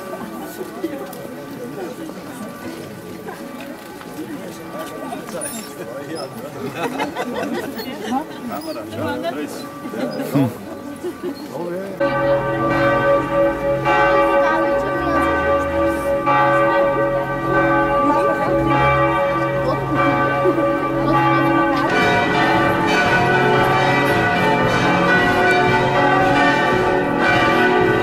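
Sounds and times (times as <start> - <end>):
church bells pealing: 11.9 - 28.0.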